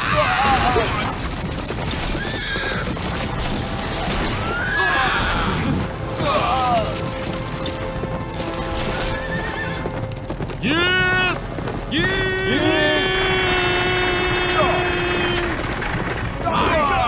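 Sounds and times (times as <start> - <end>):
background music: 0.0 - 15.6
horses neighing: 1.8 - 3.2, 4.4 - 17.0
dense clamour: 10.6 - 17.0.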